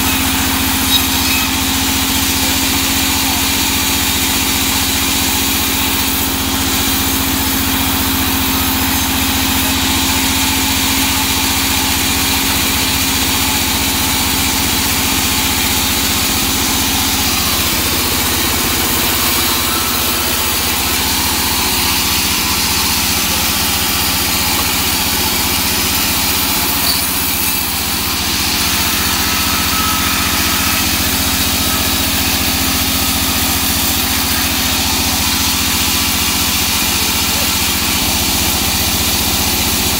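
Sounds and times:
band saw cutting logs: 0.0 - 39.9.

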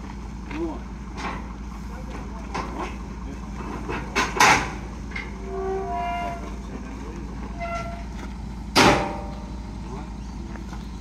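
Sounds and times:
metal hinges squealing: 4.3 - 6.8, 7.4 - 8.2
sharp metal clang: 8.8 - 9.3.

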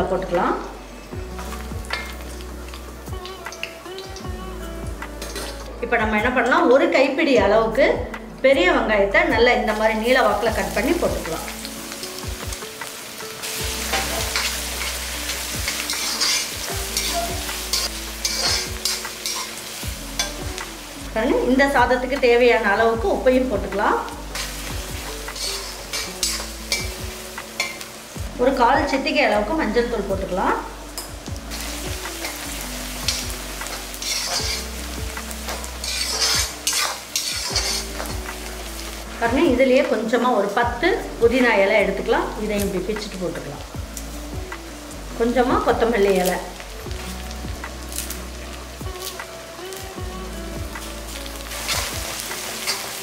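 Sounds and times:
onions sizzling in oil: 0.0 - 7.4, 9.4 - 53.0
soft background music: 0.0 - 53.0
spoon scraping pan: 15.7 - 19.6, 25.3 - 26.8, 33.1 - 34.8, 35.4 - 38.1.

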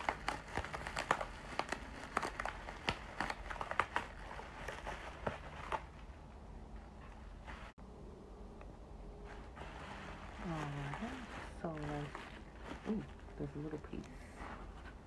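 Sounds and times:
bubble wrap crinkling and clicking: 0.0 - 6.1.

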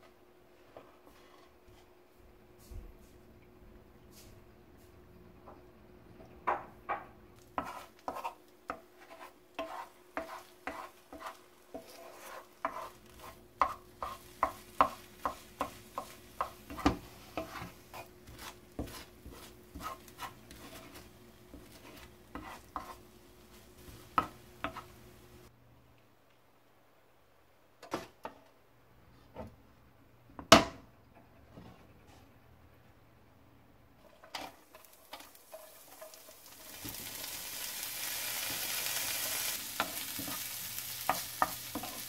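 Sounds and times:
faint sizzle: 6.4 - 25.6, 33.9 - 42.0
spatula scraping eggs in pan: 7.4 - 25.0, 34.0 - 37.3, 38.0 - 42.0
spatula knocking against pan: 13.6 - 17.8.

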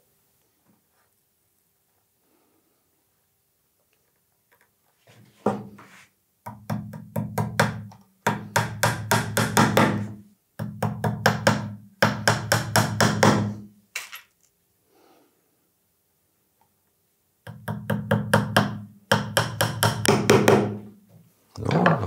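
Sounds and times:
small hammer tapping nails: 17.5 - 20.8.

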